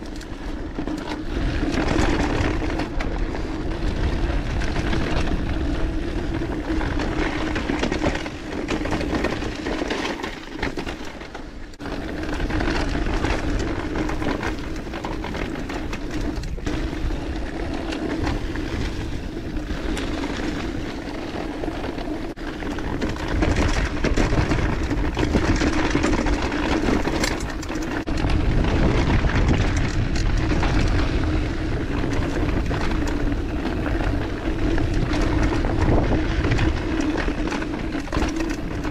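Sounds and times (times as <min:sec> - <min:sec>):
bike knocks and rattles: 0:00.0 - 0:38.9
bike tyres on dirt: 0:00.0 - 0:38.9
wind on microphone: 0:22.0 - 0:38.9.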